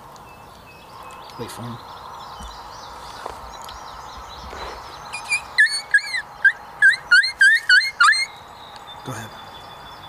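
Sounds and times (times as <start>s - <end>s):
coyote-style yips and whines: 5.1s - 8.4s.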